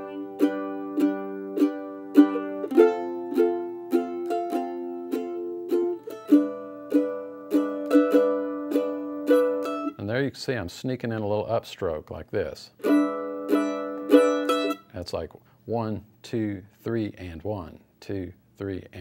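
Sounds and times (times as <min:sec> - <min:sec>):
mandolin strummed in waltz rhythm: 0:00.0 - 0:10.0, 0:12.8 - 0:14.9.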